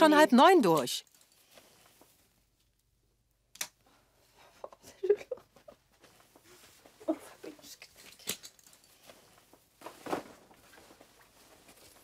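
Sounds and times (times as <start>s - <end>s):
soft rustles and light taps: 5.4s - 12.0s.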